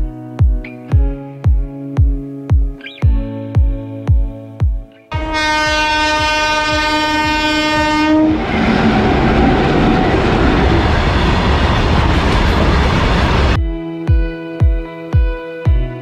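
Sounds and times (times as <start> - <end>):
train horn: 5.1 - 8.5
train rumbling past: 5.2 - 13.6.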